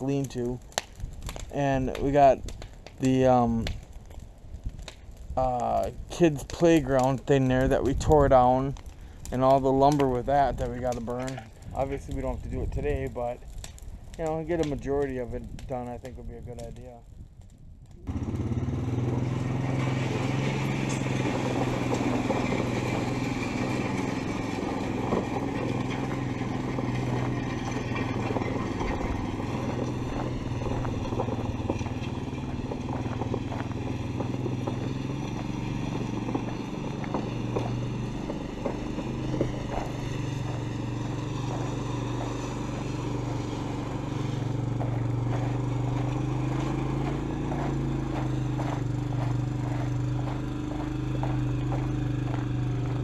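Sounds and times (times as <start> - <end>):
small vehicle engine running: 18.0 - 53.0
rattles and clatter: 19.6 - 41.7.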